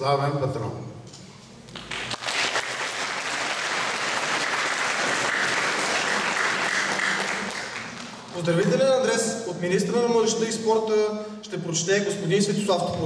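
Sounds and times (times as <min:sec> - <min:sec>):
audience applauding: 0:01.8 - 0:08.4.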